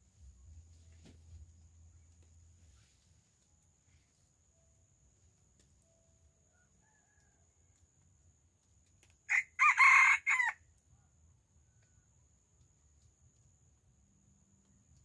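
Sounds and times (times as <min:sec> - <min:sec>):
rooster crowing: 0:06.5 - 0:07.5, 0:09.3 - 0:10.6.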